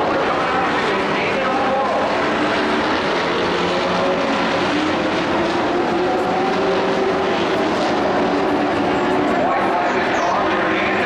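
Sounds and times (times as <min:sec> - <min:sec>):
race truck engines running: 0:00.0 - 0:11.0.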